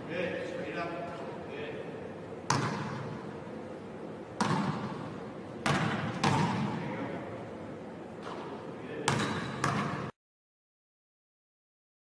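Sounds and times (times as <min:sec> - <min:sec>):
basketball bouncing on wooden floor: 0:02.5 - 0:02.9, 0:04.4 - 0:04.9, 0:05.6 - 0:06.7, 0:09.1 - 0:10.0.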